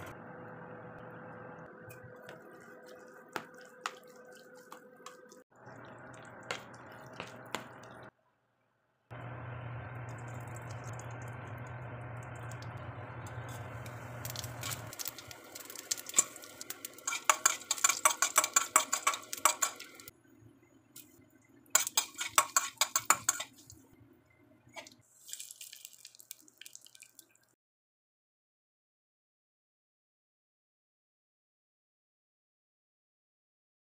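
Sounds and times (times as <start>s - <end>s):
low hum: 9.1s - 17.0s
spices crackling and popping: 9.2s - 20.1s, 20.9s - 24.0s, 24.8s - 27.5s
ghee sizzling in a pan: 13.2s - 20.1s, 21.7s - 23.6s
metal spoon scraping a pan: 15.8s - 20.1s, 21.8s - 23.6s.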